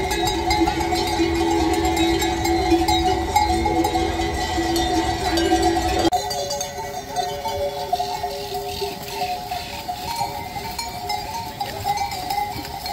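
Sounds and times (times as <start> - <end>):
livestock bells clanking: 0.0 - 12.9.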